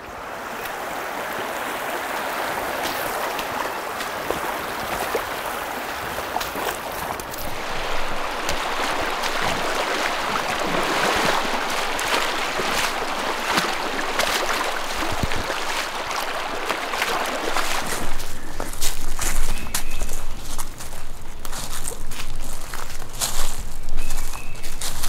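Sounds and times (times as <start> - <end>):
stream rushing: 0.0 - 25.0
boots splashing through water: 0.3 - 25.0.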